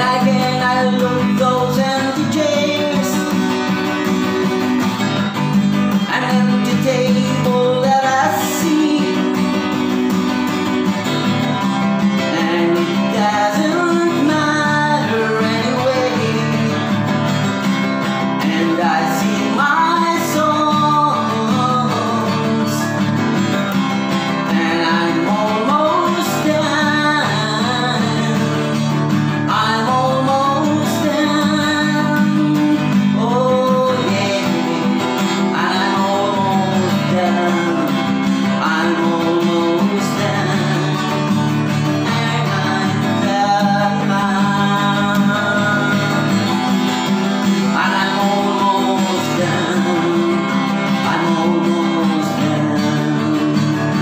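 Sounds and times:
woman singing: 0.0 - 5.2, 5.8 - 10.4, 12.2 - 17.2, 18.4 - 54.0
acoustic guitar playing: 0.0 - 54.0.

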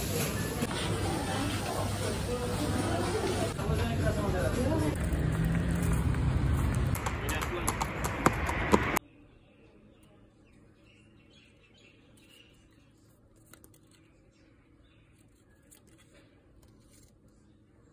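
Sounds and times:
loud street noise: 0.0 - 9.0.

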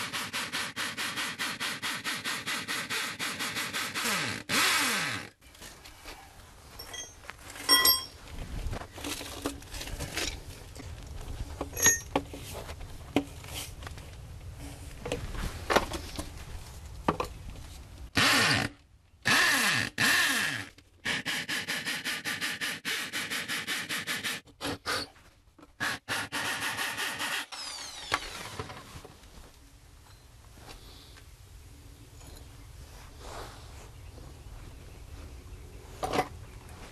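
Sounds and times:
hammer drill boring into concrete: 25.8 - 28.6.

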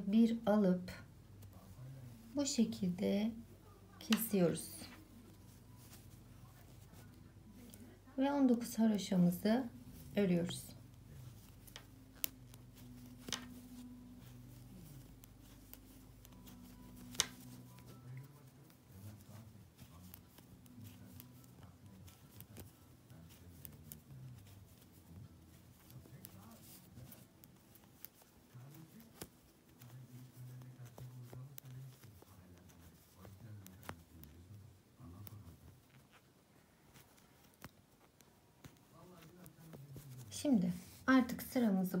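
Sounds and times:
knitting needles clicking: 3.9 - 34.4
metal knitting needles clicking: 11.4 - 17.9.

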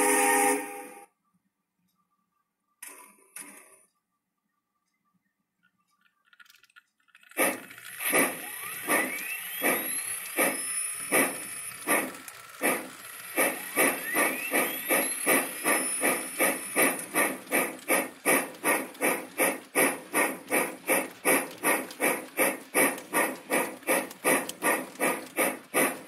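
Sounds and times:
steam locomotive chuffing: 0.0 - 1.0, 7.3 - 26.0.

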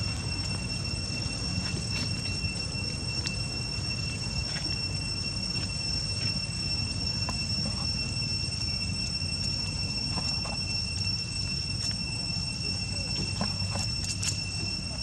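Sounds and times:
high-pitched insect drone: 0.0 - 15.0.

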